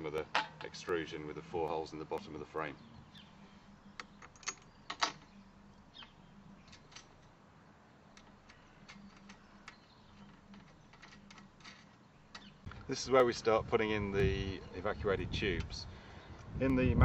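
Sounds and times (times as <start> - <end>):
metal frame pieces clicking: 8.1 - 12.7.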